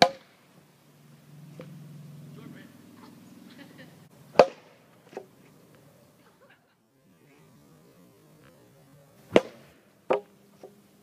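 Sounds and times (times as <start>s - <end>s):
plastic bat hitting ball: 0.0s - 0.3s, 4.4s - 5.3s, 9.3s - 10.8s
faint outdoor background: 0.0s - 11.0s.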